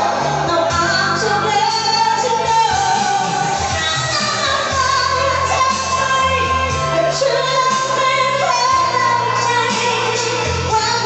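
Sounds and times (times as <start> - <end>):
backing music: 0.0 - 11.0
woman singing into a microphone: 0.0 - 11.0.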